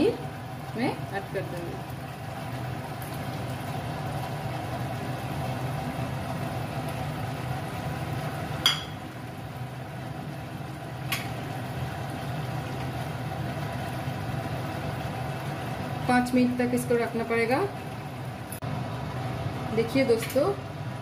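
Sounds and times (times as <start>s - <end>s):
gravy simmering in a pan: 0.0s - 16.1s
utensil knocking against pan: 8.6s - 9.0s.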